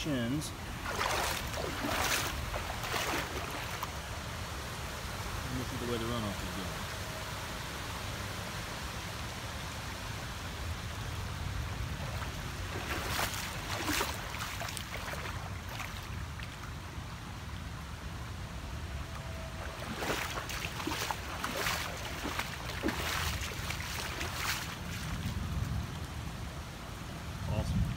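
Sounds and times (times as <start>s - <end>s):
water washing: 0.0s - 4.2s, 11.6s - 16.7s, 19.1s - 25.8s
footsteps splashing through water: 0.6s - 4.0s, 11.8s - 16.8s, 19.2s - 26.1s.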